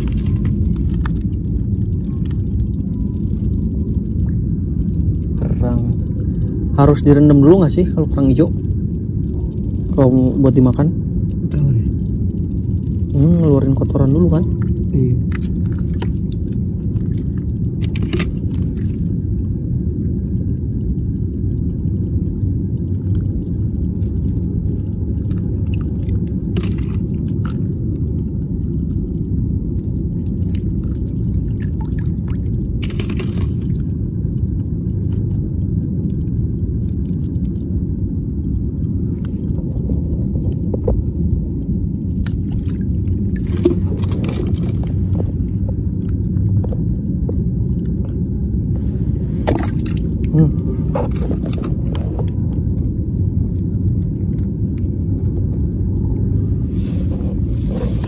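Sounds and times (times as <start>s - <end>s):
low rumble: 0.0s - 58.0s
hand splashing among rocks: 49.4s - 51.6s.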